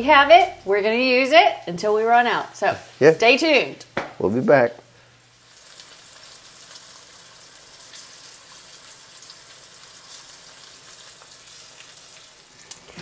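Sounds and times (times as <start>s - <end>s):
meat sizzling in oil: 5.2s - 13.0s.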